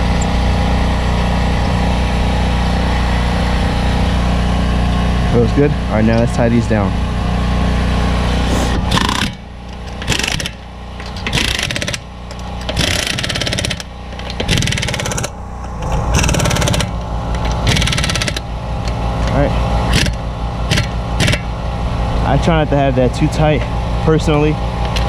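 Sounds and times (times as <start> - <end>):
steady low hum: 0.0 - 25.0
impact wrench hammering: 8.8 - 19.0, 19.9 - 21.5.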